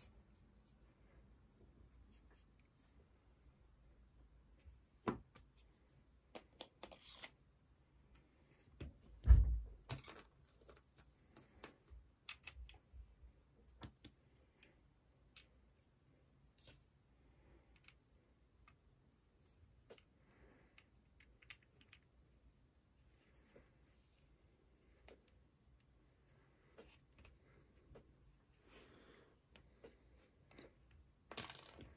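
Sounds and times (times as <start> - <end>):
dull thump: 9.2 - 9.7.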